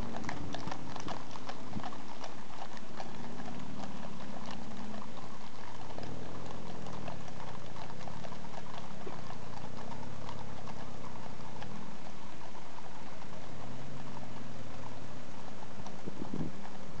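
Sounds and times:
horse hooves clip-clopping on tarmac: 0:00.0 - 0:17.0.

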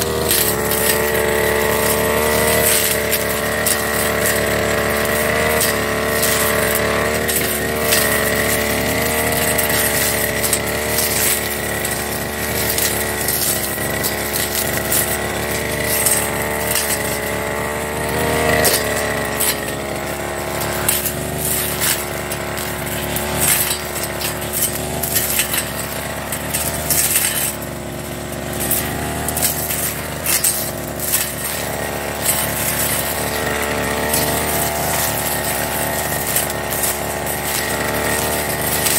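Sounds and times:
brush cutter engine running: 0:00.0 - 0:38.9
cutter striking stalks: 0:00.0 - 0:38.9.

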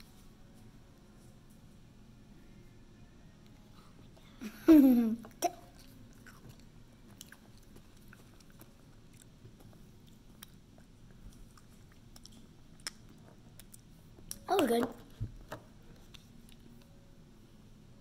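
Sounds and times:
quiet chewing of candy: 0:05.3 - 0:17.0.

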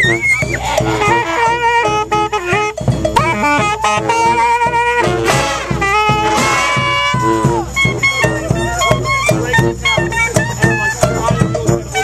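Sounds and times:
brass band punchy chords: 0:00.0 - 0:12.0
saxophone long high note: 0:00.6 - 0:08.9.

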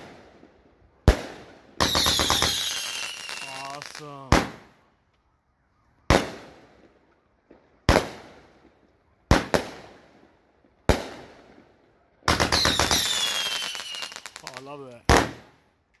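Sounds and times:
firework bangs: 0:01.1 - 0:04.8, 0:06.1 - 0:07.0, 0:07.8 - 0:10.2, 0:10.8 - 0:11.6, 0:12.3 - 0:15.6.

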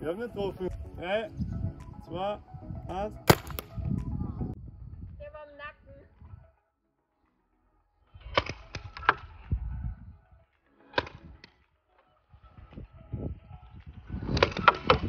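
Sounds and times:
paintball marker shots: 0:03.3 - 0:03.8, 0:08.2 - 0:09.2.

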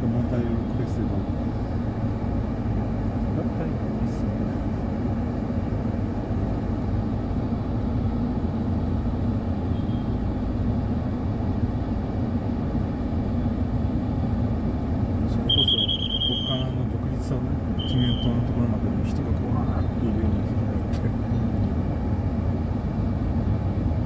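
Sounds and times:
road noise: 0:00.0 - 0:24.0
vehicle engine rumble: 0:00.0 - 0:24.0
short high beep: 0:15.5 - 0:16.8.

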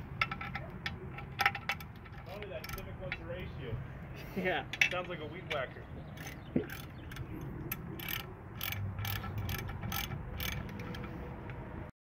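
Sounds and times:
ratchet wrench clicking: 0:00.2 - 0:03.2, 0:06.2 - 0:11.6.

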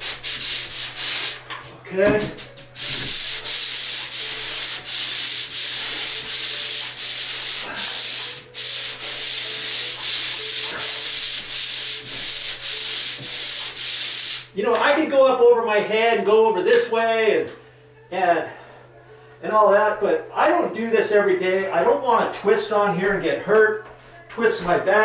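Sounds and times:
pole sander rasping on ceiling: 0:00.0 - 0:01.5, 0:02.2 - 0:14.5.

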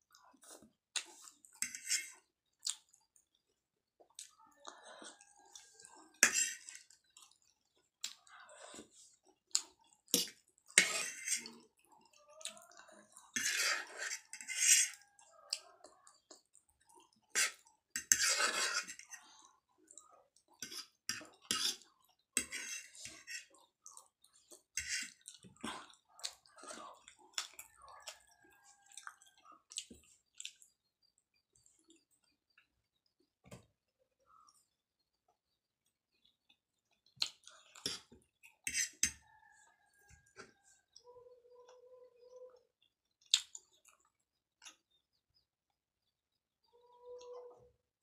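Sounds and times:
chewing food: 0:00.0 - 0:48.0
fork scraping ceramic plate: 0:01.6 - 0:02.2, 0:06.2 - 0:06.9, 0:10.1 - 0:11.6, 0:13.3 - 0:15.0, 0:17.3 - 0:19.2, 0:20.6 - 0:21.8, 0:22.4 - 0:23.5, 0:24.8 - 0:25.2, 0:37.8 - 0:39.2
slurping: 0:04.1 - 0:30.7, 0:37.0 - 0:39.9.

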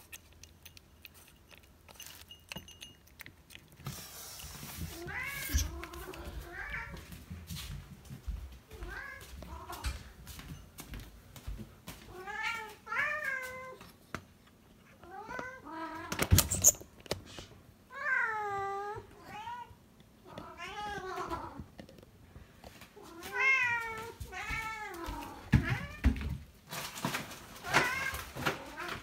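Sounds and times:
cats meowing: 0:04.9 - 0:07.1, 0:17.9 - 0:21.7, 0:23.0 - 0:26.3, 0:27.5 - 0:29.0.

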